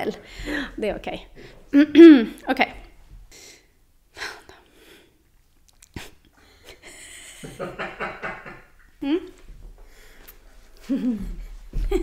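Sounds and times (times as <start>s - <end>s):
woman breathing in: 0.2s - 0.8s, 9.8s - 10.4s
woman laughing breathily: 6.6s - 9.3s, 10.8s - 12.0s.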